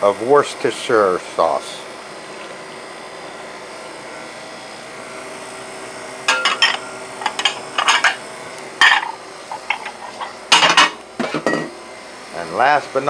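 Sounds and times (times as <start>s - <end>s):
steady background hum: 0.0s - 13.0s
ceramic plates clinking and clattering: 6.3s - 8.2s, 8.8s - 11.7s.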